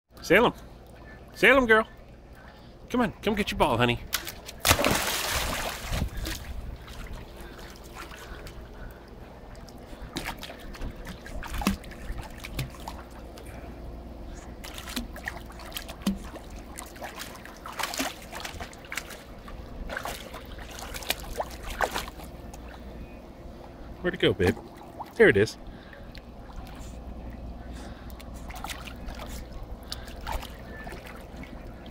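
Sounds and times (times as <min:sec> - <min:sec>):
pool water sloshing: 0:00.3 - 0:31.9
dog splashing into pool: 0:04.2 - 0:06.4, 0:14.6 - 0:19.2.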